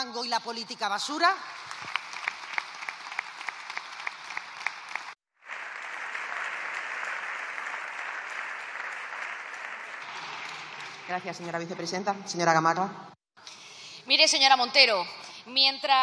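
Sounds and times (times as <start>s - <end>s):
crowd applause: 1.6s - 11.2s
nearby person clapping: 1.7s - 11.1s.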